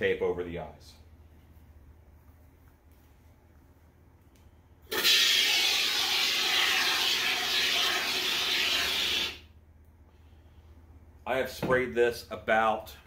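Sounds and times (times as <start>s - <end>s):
aerosol can hissing: 4.9s - 9.4s.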